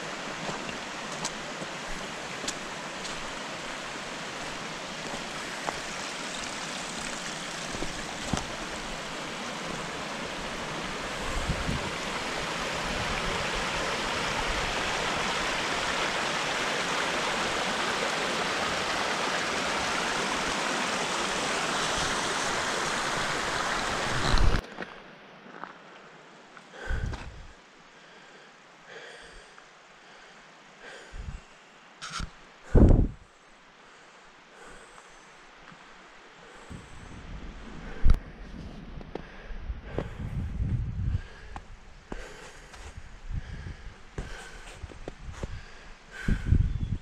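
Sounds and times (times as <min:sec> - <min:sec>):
creek rushing over rocks: 0:00.0 - 0:24.6.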